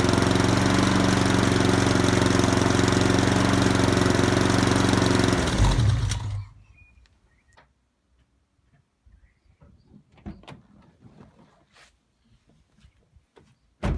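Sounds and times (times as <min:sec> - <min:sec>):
engine shuddering to a stop: 0:00.0 - 0:06.6.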